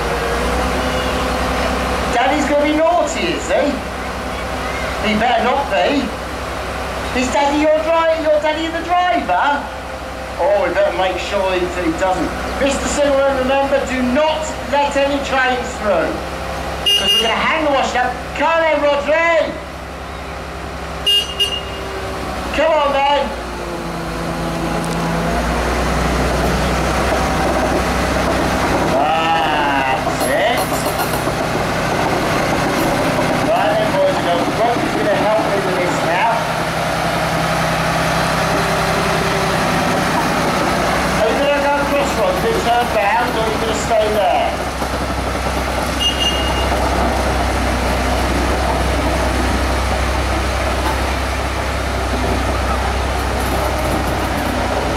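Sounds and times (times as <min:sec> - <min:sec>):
excavator diesel engine running: 0:00.0 - 0:54.9.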